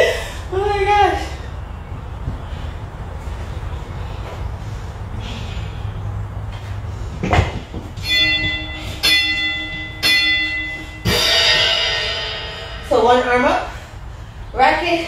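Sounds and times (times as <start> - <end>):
timer bell-like chime: 8.0 - 12.9.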